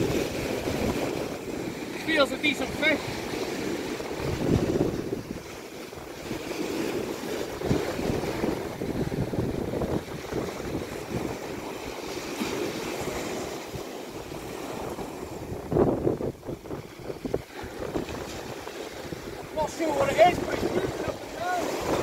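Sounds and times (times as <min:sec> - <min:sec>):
surf breaking on rocky shore: 0:00.0 - 0:22.0
wind buffeting microphone: 0:00.0 - 0:22.0.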